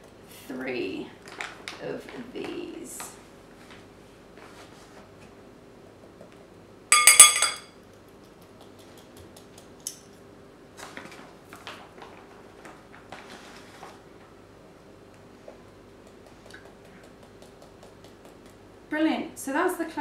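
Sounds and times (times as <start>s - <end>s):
metal spoon clinking glass bowl: 6.9s - 7.7s
scraping and rustling of bag: 10.8s - 14.3s.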